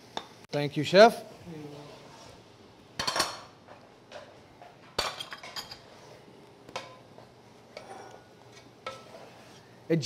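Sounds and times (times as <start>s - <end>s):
wooden spoon scraping a pot: 7.2s - 9.9s.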